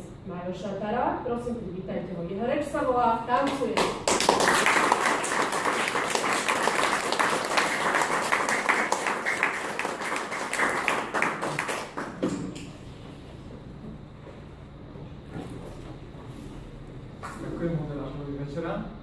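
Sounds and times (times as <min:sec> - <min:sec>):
audience applauding: 0:03.8 - 0:12.6.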